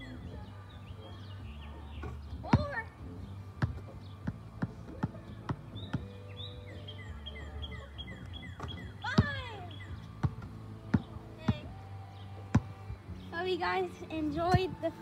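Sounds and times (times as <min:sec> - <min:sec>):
bird chirping: 0:00.0 - 0:14.8
basketball bouncing on asphalt: 0:02.0 - 0:06.6, 0:07.8 - 0:11.8, 0:12.4 - 0:13.2
ball hitting hoop: 0:10.2 - 0:11.7, 0:12.5 - 0:12.8.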